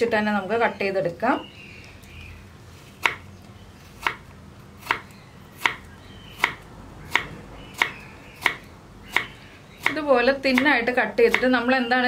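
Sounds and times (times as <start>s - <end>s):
knife chopping on wooden board: 4.8s - 10.7s.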